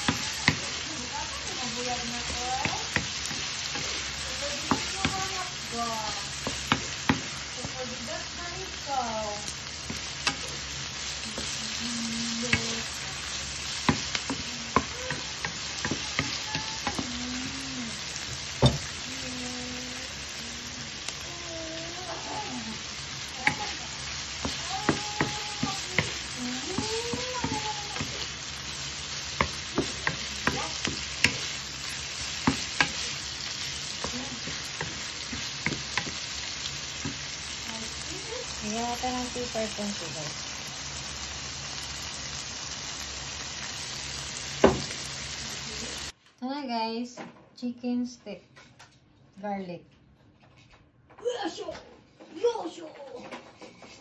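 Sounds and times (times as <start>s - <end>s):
food sizzling in a wok: 0.0s - 46.2s
wooden spatula scraping a pan: 0.1s - 5.5s, 22.1s - 37.6s.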